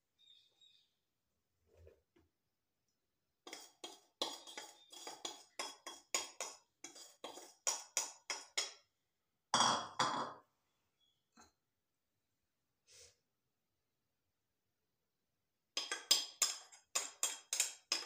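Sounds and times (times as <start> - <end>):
metal spoon tapping glass bowl: 15.8 - 18.0.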